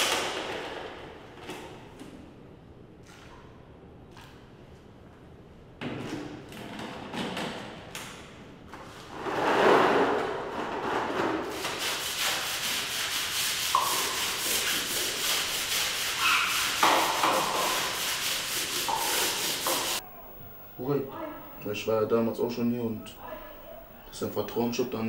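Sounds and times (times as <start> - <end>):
brush scraping wet tiled floor: 8.8 - 20.0.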